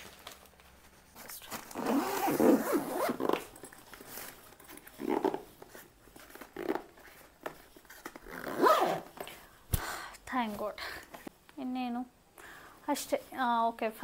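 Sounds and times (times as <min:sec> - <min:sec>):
suitcase zipper being pulled: 0:01.7 - 0:03.6, 0:04.8 - 0:05.8, 0:08.2 - 0:09.1.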